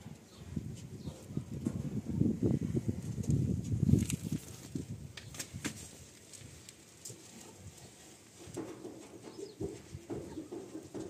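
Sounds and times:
quiet low bird calls: 0:00.2 - 0:01.6, 0:09.1 - 0:10.8.

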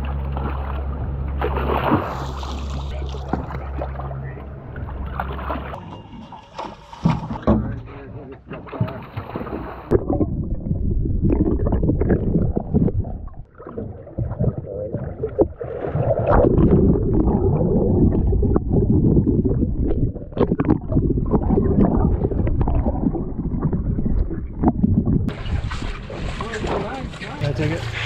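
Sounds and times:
fish thrashing underwater: 0:08.4 - 0:28.0
muffled underwater bubbles gurgling: 0:09.9 - 0:25.5.

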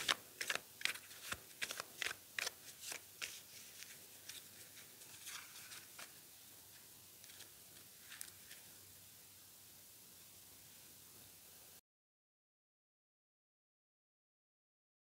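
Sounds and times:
cards clicking while shuffled: 0:00.0 - 0:06.2.

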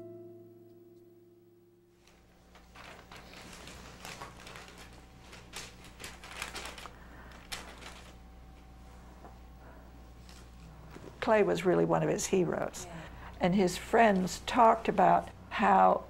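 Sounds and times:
low electrical hum: 0:00.0 - 0:16.0
paper sheets rustling: 0:02.0 - 0:08.8, 0:10.1 - 0:11.2.

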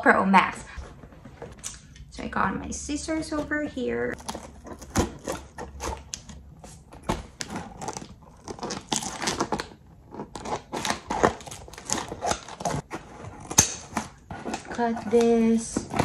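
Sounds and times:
scissors slitting packing tape: 0:07.4 - 0:12.8.

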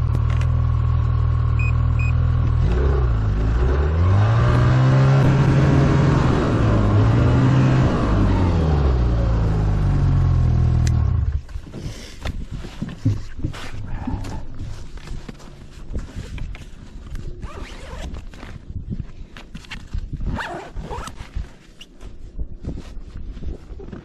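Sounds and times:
snowmobile engine revving: 0:02.6 - 0:11.3.

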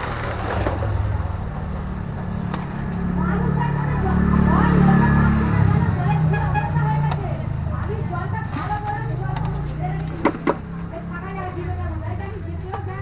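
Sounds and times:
low motor rumble: 0:00.0 - 0:13.0
people talking: 0:03.0 - 0:13.0.

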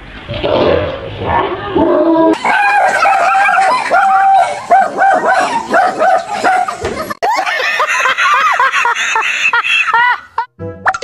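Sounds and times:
dog barking and yelping: 0:02.3 - 0:06.8.

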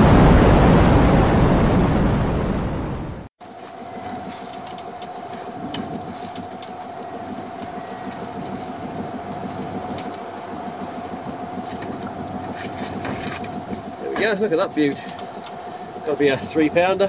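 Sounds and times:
constant whine: 0:00.0 - 0:17.0
boat engine idling: 0:03.4 - 0:17.0
light knocks and rattles: 0:03.6 - 0:17.0.

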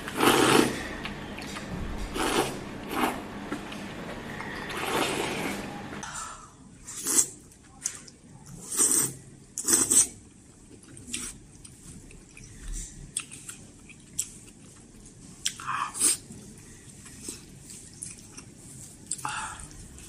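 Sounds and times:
person slurping noodles: 0:00.1 - 0:00.9, 0:02.1 - 0:03.2, 0:04.7 - 0:05.6
wet chewing and smacking: 0:09.6 - 0:15.6, 0:16.9 - 0:20.0.

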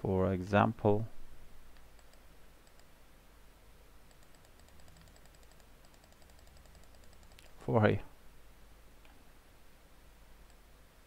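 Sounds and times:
low steady hum: 0:00.0 - 0:11.0
computer mouse clicking: 0:01.7 - 0:02.9, 0:04.1 - 0:07.5, 0:10.4 - 0:10.6.

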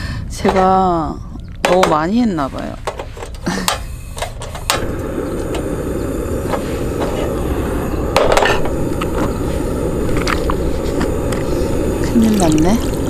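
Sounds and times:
gas burner rushing: 0:01.7 - 0:13.0
igniter clicks: 0:02.8 - 0:13.0.

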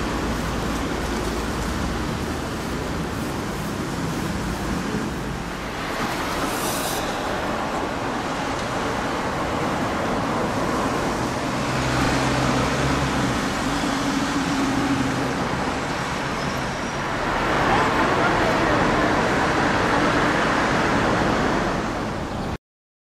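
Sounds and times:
vehicle engine hum: 0:00.0 - 0:22.3
road traffic: 0:00.0 - 0:22.6
brief hiss: 0:05.9 - 0:07.9.

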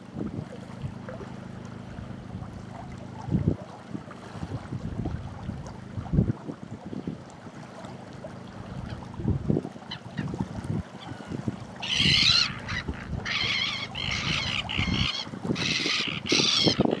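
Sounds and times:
water lapping: 0:00.0 - 0:17.0
bird calling high and wavering: 0:09.7 - 0:17.0.

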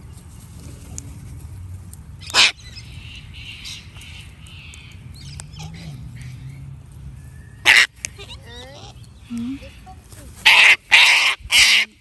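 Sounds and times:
cockatoo flock calling: 0:02.2 - 0:06.4, 0:07.6 - 0:12.0.

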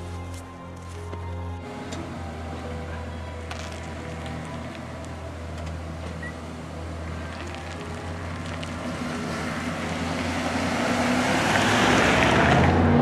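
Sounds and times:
tyre and road rush: 0:00.0 - 0:13.0
pickup truck driving past: 0:01.6 - 0:13.0.

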